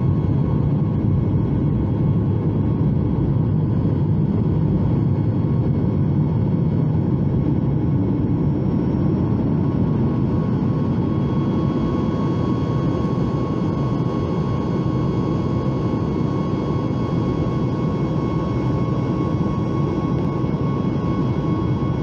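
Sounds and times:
thin steady whine: 0.0s - 22.0s.

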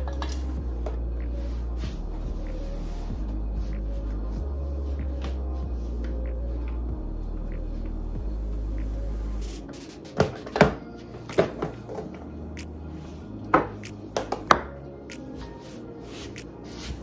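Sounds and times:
low background music: 0.0s - 17.0s.

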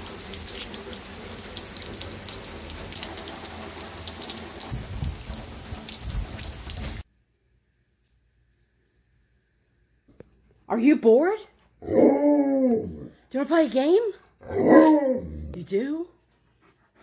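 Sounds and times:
raindrops ticking close by: 0.0s - 7.0s
steady rain falling: 0.0s - 7.0s.

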